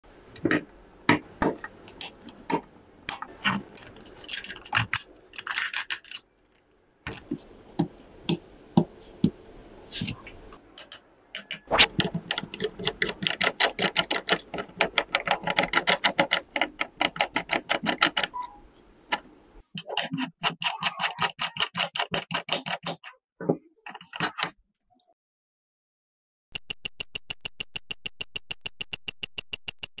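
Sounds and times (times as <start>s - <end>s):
fingers tapping on plastic and metal: 10.8s - 23.2s.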